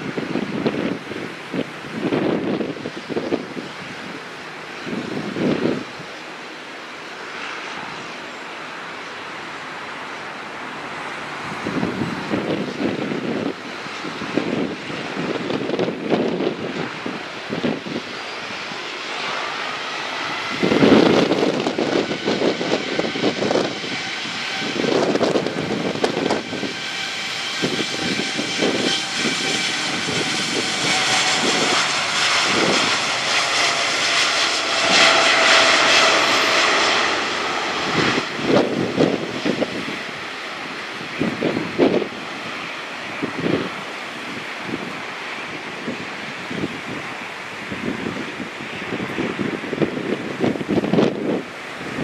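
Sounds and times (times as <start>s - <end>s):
wind thumping on microphone: 0.0s - 4.0s, 11.4s - 18.1s, 20.2s - 45.0s, 47.7s - 52.0s
jet engine roar with whine: 0.0s - 52.0s.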